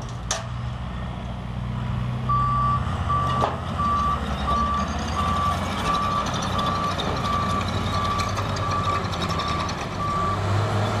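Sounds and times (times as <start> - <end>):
diesel engines running: 0.0 - 11.0
backup alarm beeping: 2.3 - 6.2.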